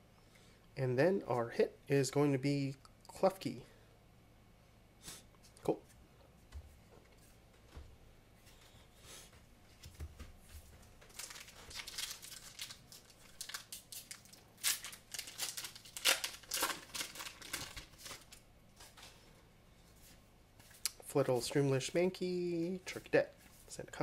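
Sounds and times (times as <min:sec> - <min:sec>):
foil wrapper crinkling and tearing: 0:11.1 - 0:18.4.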